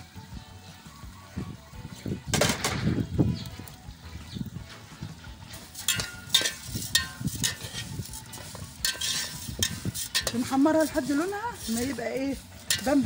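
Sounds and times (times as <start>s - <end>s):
noodles sizzling in oil: 5.2s - 13.0s
metal spoon scraping a pot: 5.5s - 13.0s.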